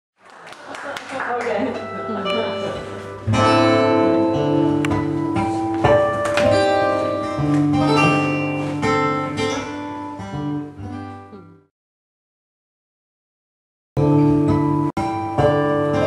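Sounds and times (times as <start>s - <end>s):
acoustic guitar: 1.7s - 11.7s, 14.0s - 16.0s.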